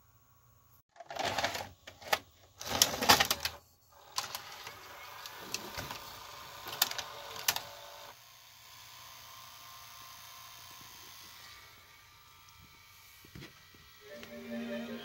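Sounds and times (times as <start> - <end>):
mechanical whirr of cassette carriage: 1.0 - 8.1.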